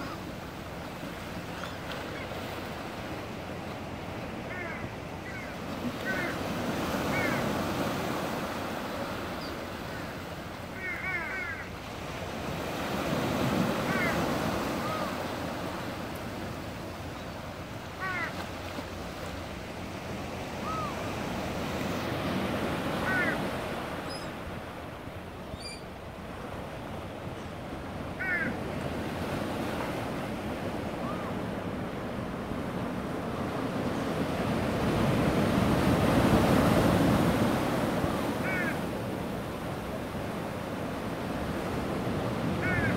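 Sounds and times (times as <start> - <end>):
gulls calling: 0.0 - 3.2, 4.0 - 11.9, 12.9 - 19.1, 20.4 - 26.0, 26.9 - 28.8, 30.8 - 31.6, 37.2 - 38.9, 41.6 - 42.9
sea surf washing: 0.0 - 42.9.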